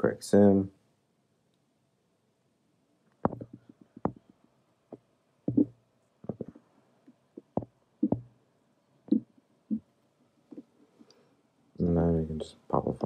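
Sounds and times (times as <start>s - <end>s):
faint steady hum: 0.0s - 13.0s
soft knocks and clicks: 3.2s - 4.2s, 4.9s - 6.6s.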